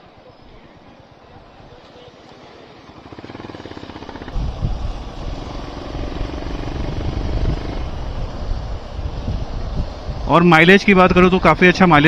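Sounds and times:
motorcycle engine accelerating: 2.2 - 8.9
wind buffeting microphone: 3.0 - 12.0.

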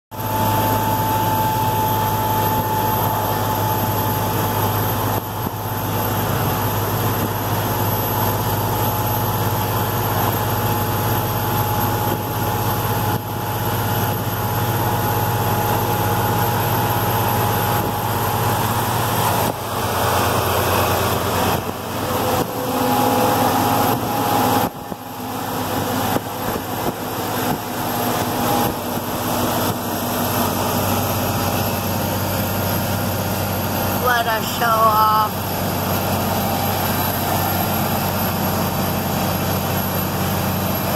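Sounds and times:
truck engine droning: 0.1 - 40.9
passing truck engine: 17.0 - 34.0
road noise: 17.4 - 40.9.

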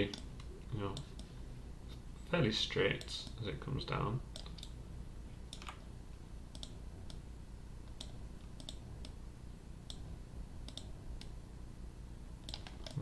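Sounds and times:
faint low hum: 0.0 - 13.0
mouse and keyboard clicks: 12.4 - 13.0.

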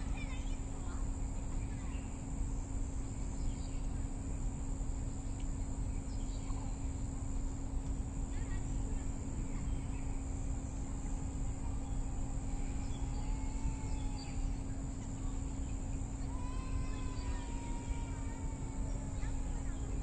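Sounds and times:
high insect drone: 0.0 - 20.0
faint bird chirps: 11.6 - 17.5.

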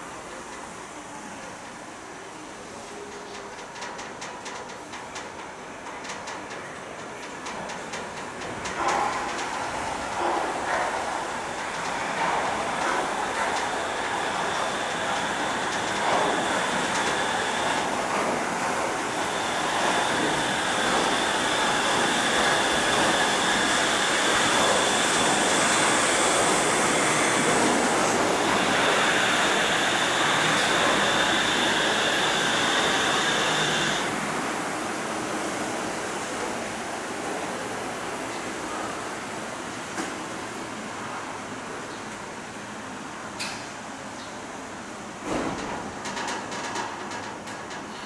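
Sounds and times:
train equipment humming: 8.2 - 36.4
high thin whining tones: 13.0 - 34.2.

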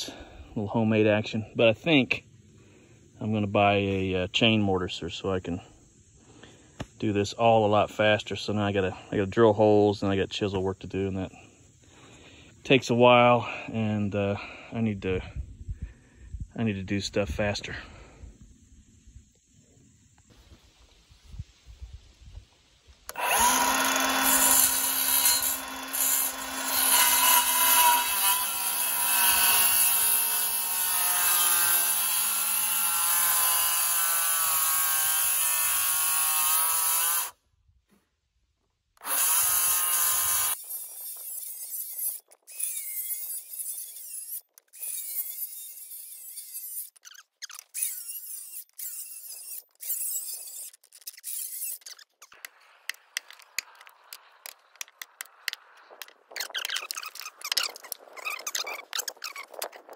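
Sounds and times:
saw and wood scraping and clicking: 23.1 - 37.3, 39.0 - 59.9
circular saw cutting wood: 23.1 - 37.4, 39.0 - 59.8.

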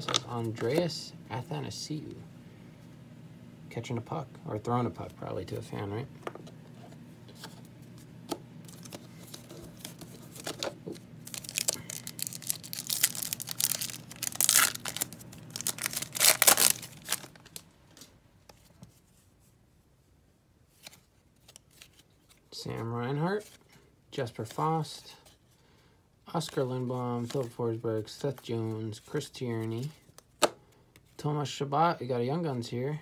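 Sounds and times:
foil wrapper crinkling and tearing: 8.7 - 18.0.

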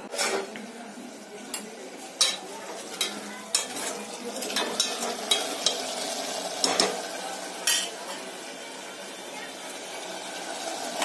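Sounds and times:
curry sizzling: 0.0 - 11.0.

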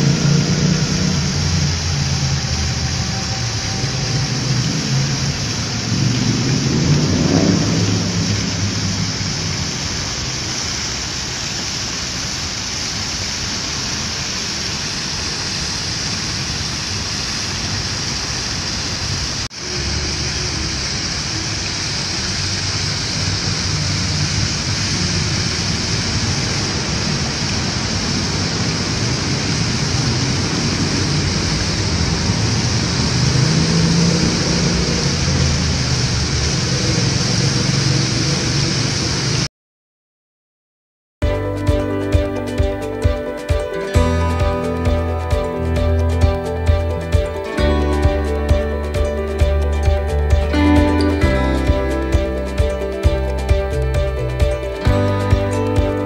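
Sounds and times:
low rumble: 0.0 - 10.8, 41.3 - 56.0
fountain water splashing: 0.0 - 39.5, 41.3 - 56.0.

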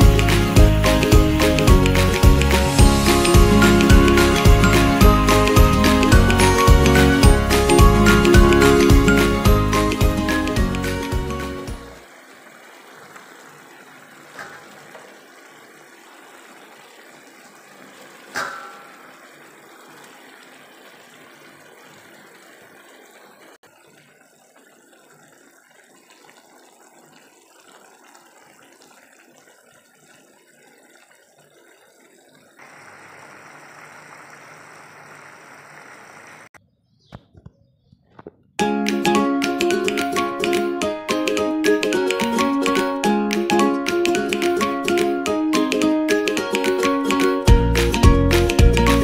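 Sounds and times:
food simmering in a pan: 12.0 - 36.5.

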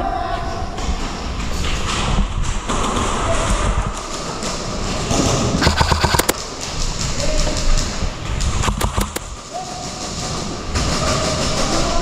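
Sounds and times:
airsoft rifle firing: 5.6 - 6.6, 8.6 - 10.2
footsteps: 5.6 - 12.0.

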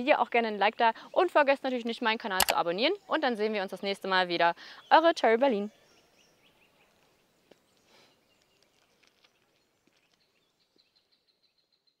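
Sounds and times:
faint bird chirping: 4.6 - 12.0.

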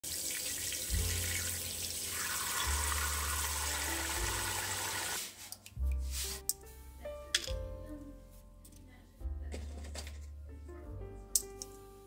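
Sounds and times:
faucet water filling a pot: 0.0 - 5.2.

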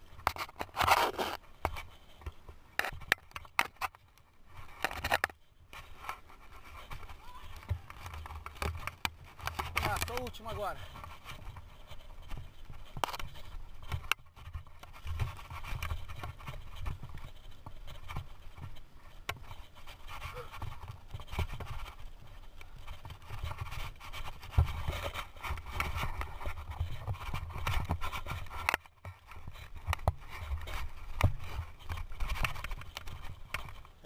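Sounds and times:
bike knocking and rattling: 0.0 - 34.0
bike tyres rolling on dirt: 0.0 - 34.0.

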